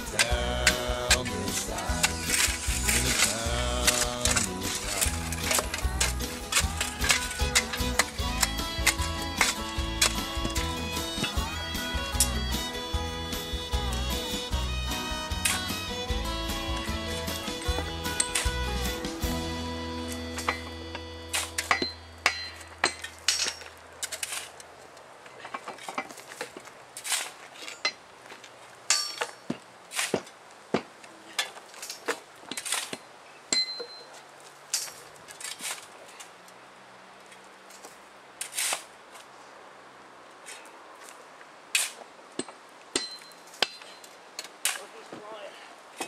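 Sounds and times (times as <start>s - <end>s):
hammer striking metal track: 20.3s - 23.6s.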